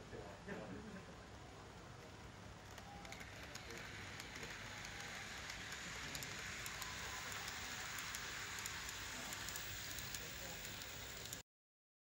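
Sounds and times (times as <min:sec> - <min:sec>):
model train wheels on rails: 0:00.8 - 0:11.4
faint clicks: 0:02.0 - 0:11.4.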